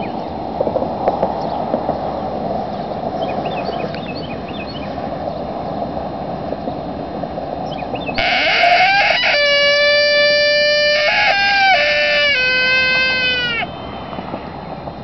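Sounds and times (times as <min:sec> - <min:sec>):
coyote howler call: 0:08.2 - 0:13.8
faint chirps: 0:08.2 - 0:14.2.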